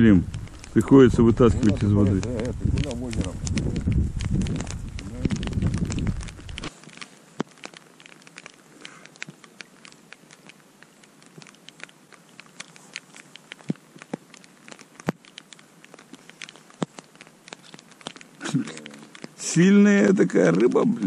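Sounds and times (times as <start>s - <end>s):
light rain pattering: 0.0s - 21.0s
sharp ticks of raindrops: 0.0s - 21.0s.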